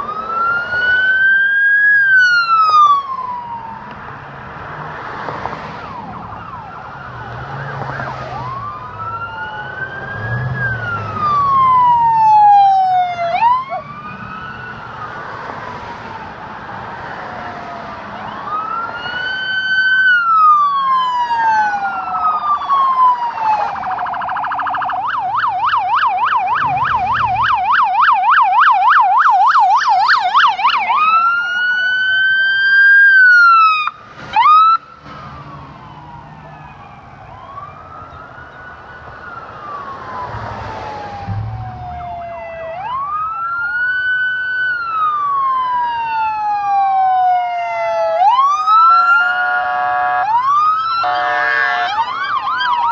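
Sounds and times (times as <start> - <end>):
police siren yelping: 0.0 - 4.0, 5.7 - 52.9
police siren wailing: 0.0 - 52.9
loud horn blast: 49.2 - 50.4, 51.0 - 52.0.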